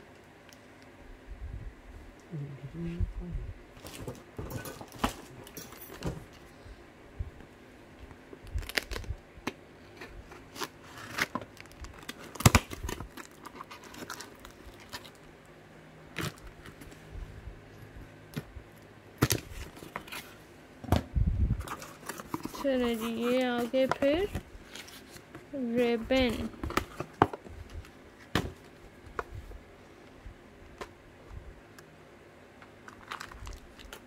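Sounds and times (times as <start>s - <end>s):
cardboard tearing and crinkling: 8.4s - 9.2s, 10.3s - 15.2s, 16.1s - 16.9s, 32.9s - 34.0s
packing tape cracking: 8.4s - 15.3s, 16.1s - 17.0s, 32.8s - 34.0s.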